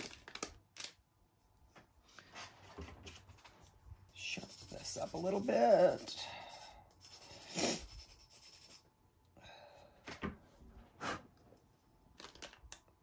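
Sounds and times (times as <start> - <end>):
pencil being sharpened: 4.2 - 8.9.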